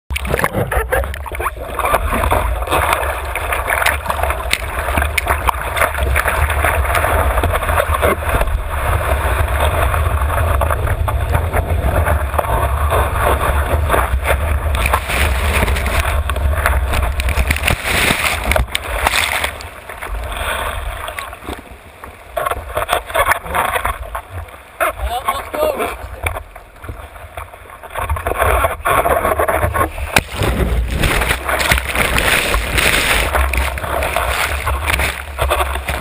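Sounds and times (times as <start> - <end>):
water rushing and spraying: 0.1 - 36.0
small splashes: 30.2 - 36.0.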